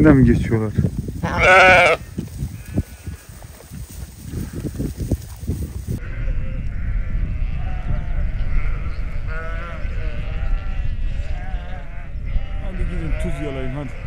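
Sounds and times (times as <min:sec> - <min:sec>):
sheep bleating: 0:01.2 - 0:03.4, 0:06.0 - 0:14.0.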